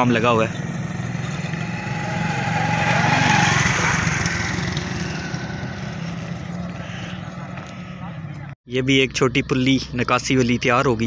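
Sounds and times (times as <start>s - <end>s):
motorcycle passing by: 0.0s - 8.6s.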